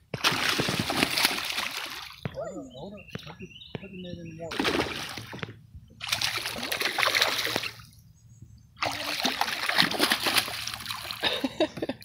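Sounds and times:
fish splashing at water surface: 0.1s - 2.2s, 4.5s - 8.0s, 8.8s - 11.4s.

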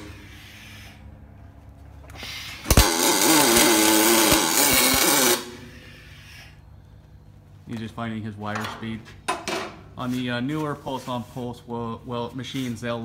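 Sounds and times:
welding arc buzzing hiss: 2.2s - 5.8s
welding arc crack: 2.6s - 5.6s.

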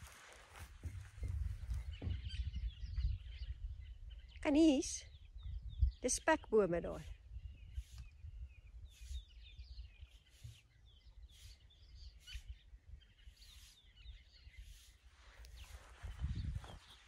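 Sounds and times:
faint bird chirps: 0.6s - 17.0s.

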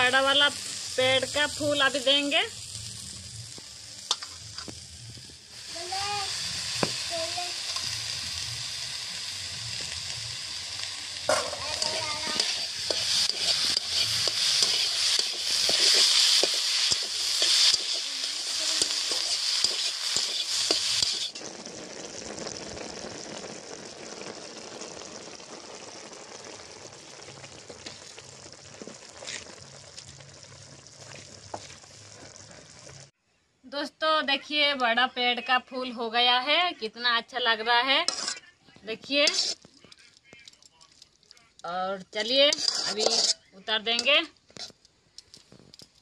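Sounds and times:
food sizzling in a wok: 0.0s - 33.2s, 37.3s - 38.4s, 39.0s - 39.8s, 41.2s - 44.8s
metal spatula scraping a wok: 11.3s - 21.4s, 38.0s - 38.4s, 39.0s - 39.7s, 42.1s - 44.8s.

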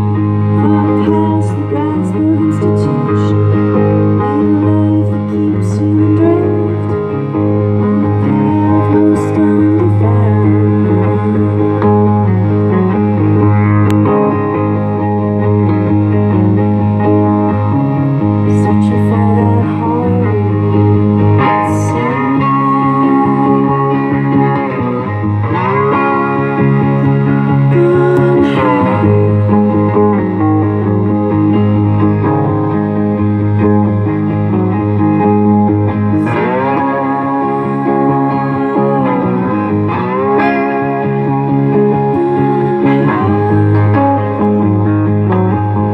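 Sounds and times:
electric guitar playing: 0.0s - 45.9s.

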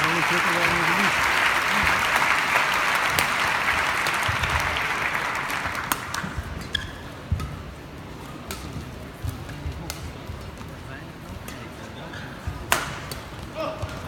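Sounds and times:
crowd applauding: 0.0s - 6.6s
rackets striking shuttlecock: 8.2s - 10.1s, 12.6s - 13.4s.

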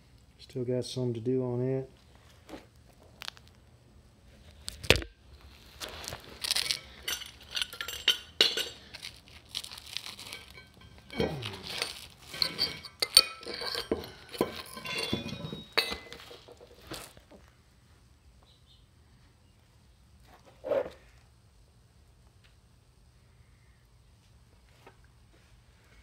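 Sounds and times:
metal slag chipping clinks: 6.4s - 16.6s.

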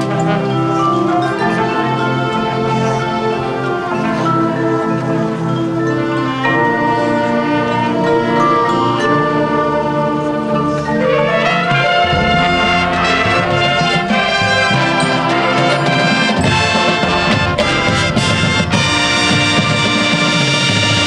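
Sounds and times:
marching band playing: 6.0s - 21.0s
saxophones and brass chords: 6.2s - 21.0s
drums: 11.4s - 21.0s.

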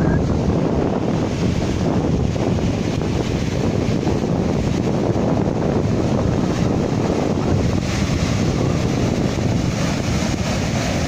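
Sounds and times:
waves breaking over rocks: 0.0s - 11.0s
wind buffeting microphone: 0.0s - 11.0s.

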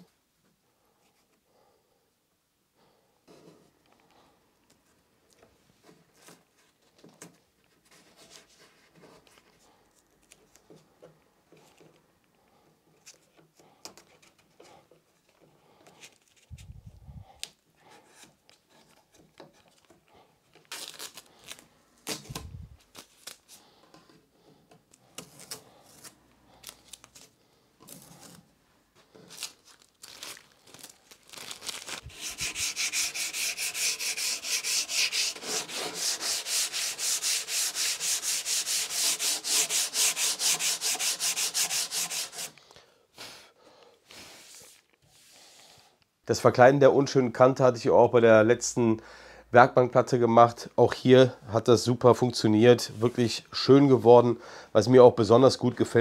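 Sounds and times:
masking tape peeling: 20.6s - 23.5s, 29.3s - 42.5s
hand-sanding strokes on wood: 32.0s - 42.6s.

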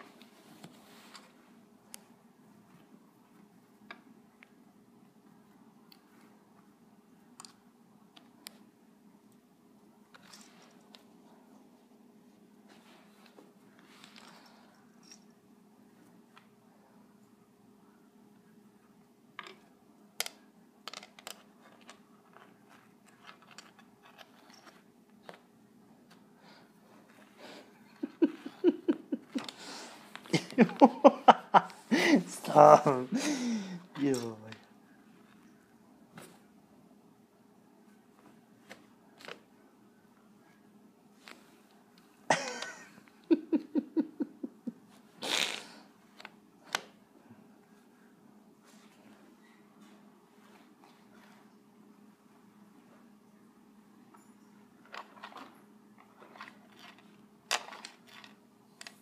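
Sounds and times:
person laughing: 27.8s - 33.9s, 42.3s - 44.9s
cat hissing: 45.2s - 45.9s.

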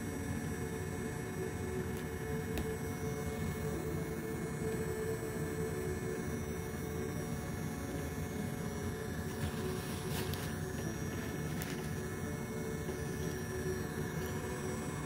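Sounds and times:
hot air gun fan rushing: 9.2s - 15.0s.

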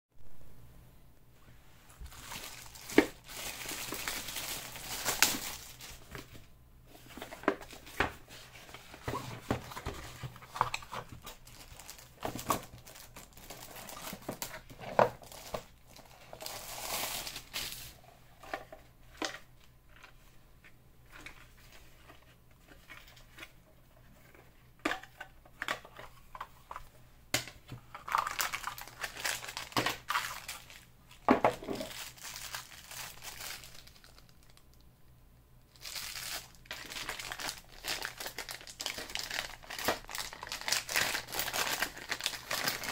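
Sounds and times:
plastic wrapping crinkling: 1.9s - 6.4s, 7.1s - 18.0s, 27.9s - 34.8s, 35.7s - 42.9s.

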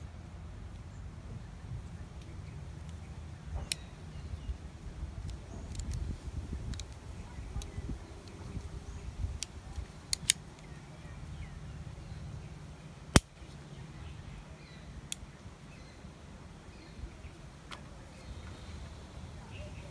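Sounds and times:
multitool clicking shut: 9.4s - 10.7s, 13.1s - 13.4s.

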